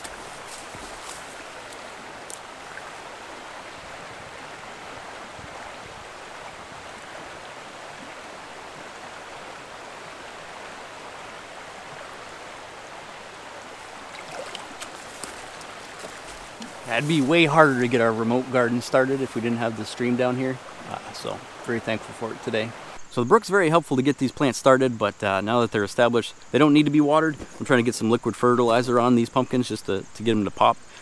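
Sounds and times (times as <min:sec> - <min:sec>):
brook flowing over stones: 0:00.0 - 0:23.0.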